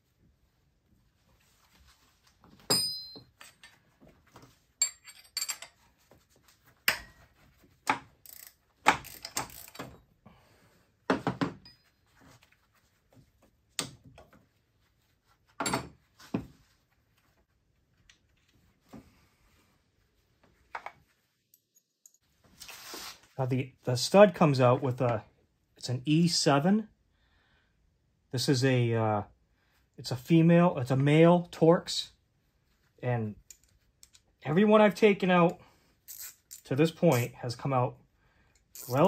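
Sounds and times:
metal tools clinking: 2.7 - 3.8, 4.8 - 5.8, 36.1 - 37.4.

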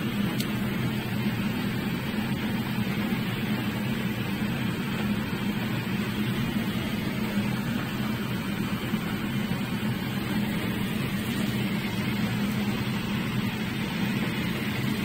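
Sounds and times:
constant low hum: 0.0 - 15.0
fish sizzling in oil: 4.8 - 15.0.

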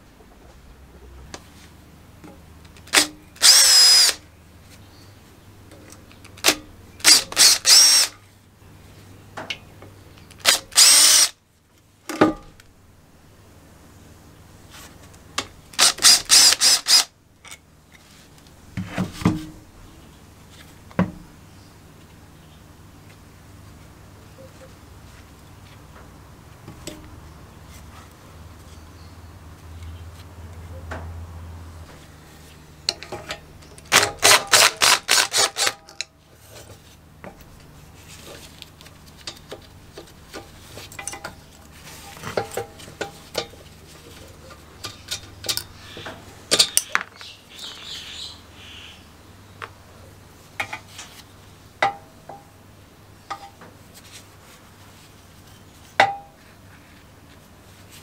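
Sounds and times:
metal engine parts clinking: 40.8 - 41.4.

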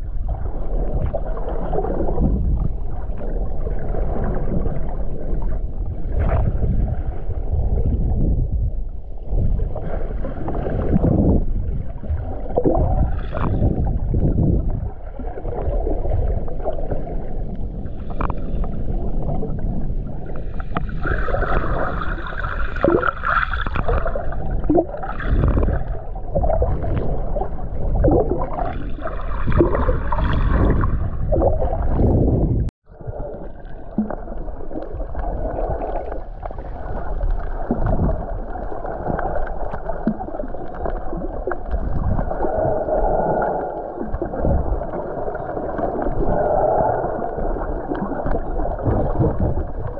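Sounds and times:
muffled underwater rumble: 0.0 - 49.9.

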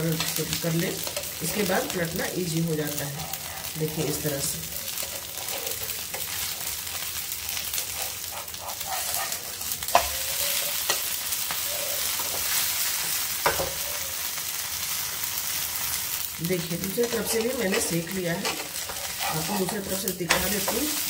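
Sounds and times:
batter sizzling in hot oil: 0.0 - 21.0
spatula tapping a pan: 9.9 - 11.6, 13.4 - 13.8.

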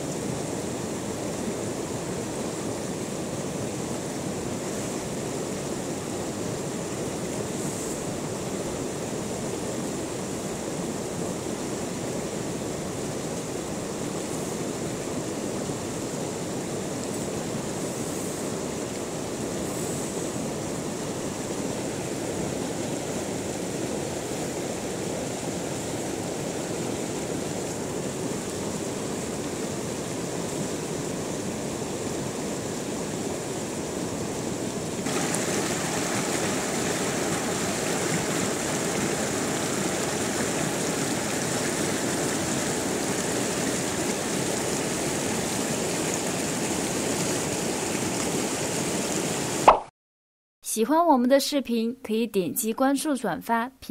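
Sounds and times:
water rushing over rocks: 18.4 - 49.9.

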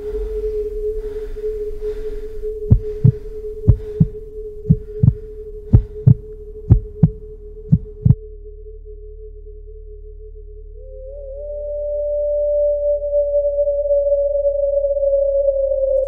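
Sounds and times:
held drone tone: 0.0 - 16.0
heartbeat thumps: 2.7 - 8.2.

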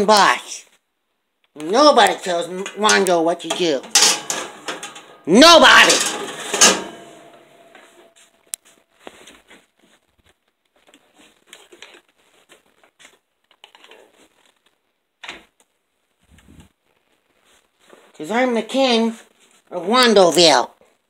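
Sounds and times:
objects handled on kitchen counter: 2.1 - 8.2.

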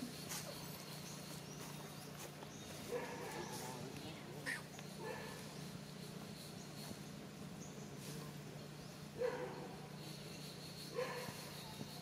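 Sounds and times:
monkey calls: 3.1 - 6.2.

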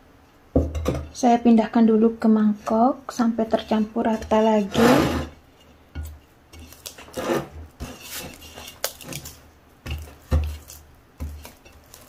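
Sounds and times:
dough squelching and slapping: 6.0 - 12.0.

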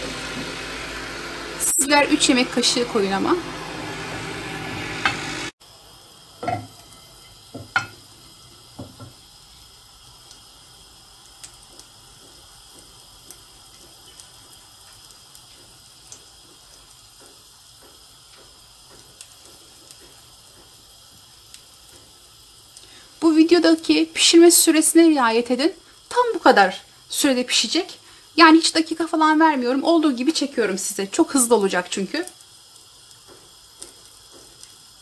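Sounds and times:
oil sizzling faintly: 0.0 - 35.0
knocks against frying pan: 7.5 - 8.0, 8.8 - 9.2.

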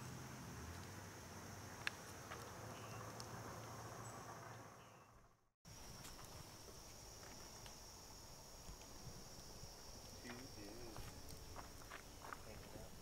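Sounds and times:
high insect chorus: 0.0 - 5.1, 5.7 - 13.0.

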